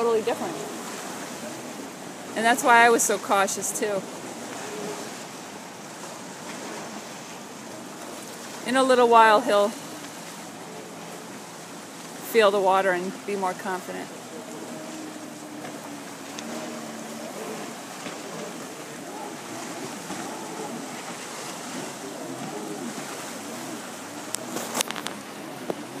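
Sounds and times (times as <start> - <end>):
choppy waves washing: 0.0 - 26.0
distant jet ski engine droning: 0.0 - 26.0.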